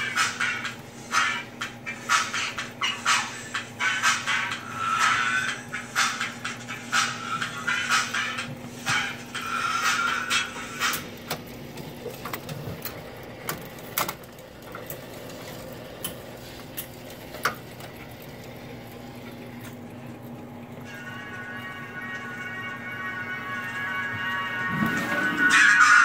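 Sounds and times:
music from record: 0.0s - 13.9s, 20.8s - 26.0s
steady hum: 0.0s - 26.0s.

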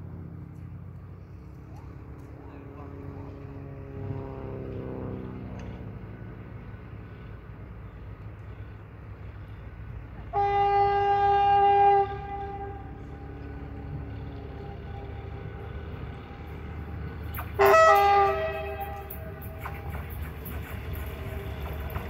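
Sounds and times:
train rumbling: 0.0s - 22.0s
train horn blasts: 10.2s - 16.6s, 17.3s - 20.2s.

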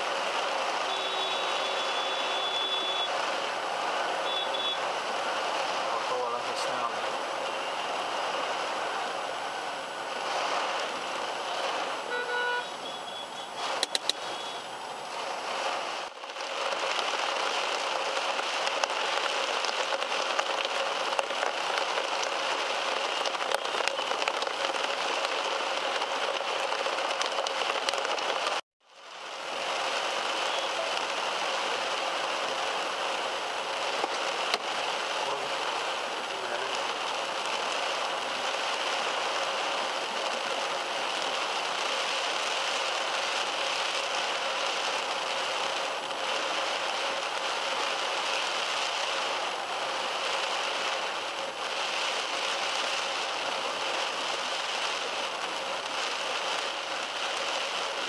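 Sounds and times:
heavy rain on car roof: 0.0s - 58.0s
traffic noise: 0.0s - 58.0s
brief tone: 12.8s - 13.5s, 14.2s - 14.6s.

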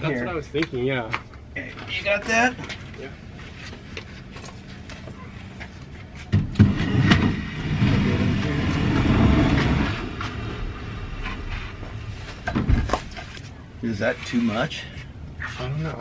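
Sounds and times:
wood slab scraping across wood: 6.6s - 13.3s.

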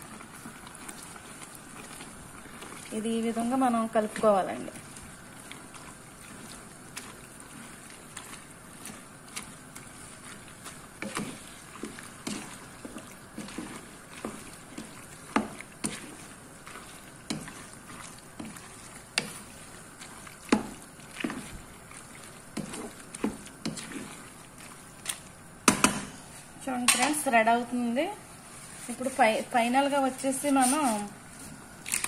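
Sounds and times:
sauce squelching and sloshing: 0.0s - 27.5s
spatula knocking against pot: 25.6s - 26.1s.

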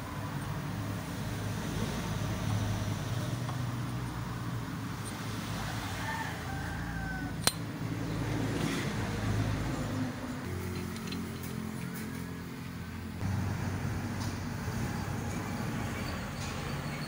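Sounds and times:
rooster crowing: 5.5s - 7.5s.

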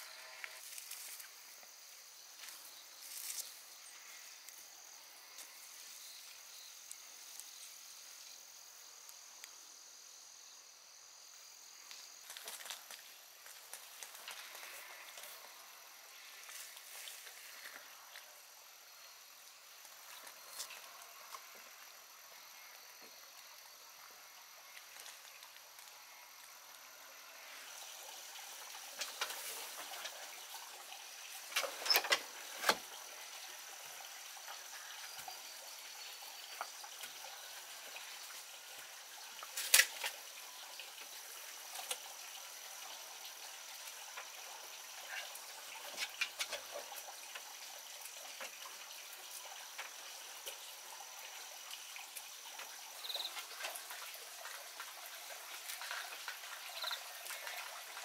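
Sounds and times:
dried flowers clicking and rustling: 11.9s - 15.4s.

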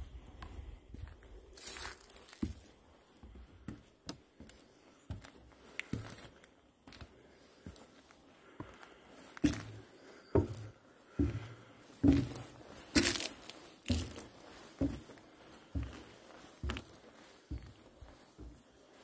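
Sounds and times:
crinkling: 1.6s - 2.8s, 12.1s - 15.7s.

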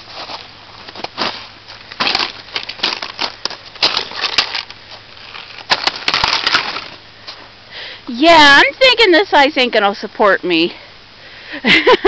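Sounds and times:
ice cracking under boot: 0.2s - 7.0s.

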